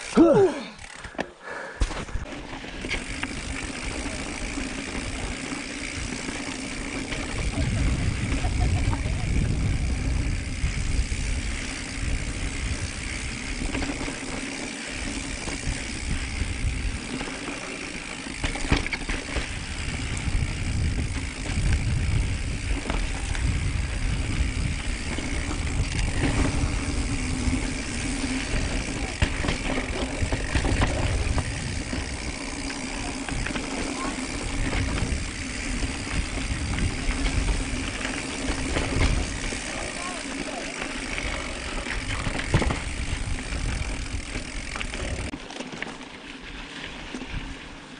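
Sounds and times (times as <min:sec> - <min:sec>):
bike knocking and rattling: 0:00.0 - 0:47.9
wind buffeting microphone: 0:07.2 - 0:13.6, 0:19.5 - 0:32.4, 0:34.3 - 0:39.5
tyres rolling over rock and dirt: 0:16.8 - 0:46.2.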